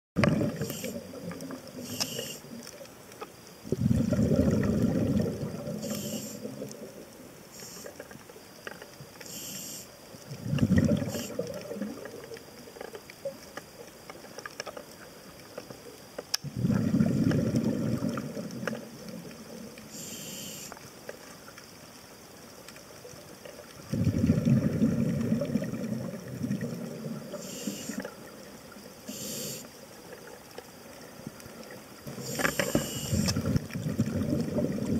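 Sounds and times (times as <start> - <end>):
exhaled bubbles rumbling: 0.2 - 2.0, 3.6 - 7.6, 10.2 - 13.4, 16.4 - 20.1, 23.5 - 29.2, 30.0 - 34.9
scuba regulator inhale hiss: 0.4 - 1.2, 1.8 - 2.5, 5.7 - 6.7, 7.5 - 8.1, 9.2 - 10.0, 10.6 - 11.4, 19.9 - 20.9, 27.3 - 28.2, 29.0 - 29.8, 32.1 - 33.6.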